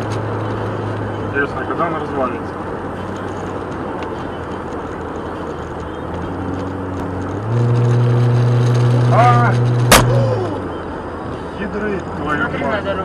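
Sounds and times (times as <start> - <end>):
road and tyre noise: 0.0 - 13.0.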